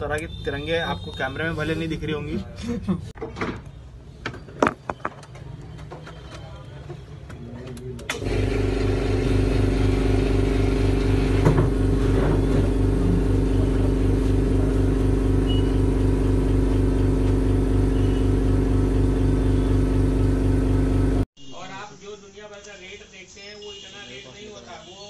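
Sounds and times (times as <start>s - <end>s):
motor running with pulsing throb: 8.2s - 21.2s.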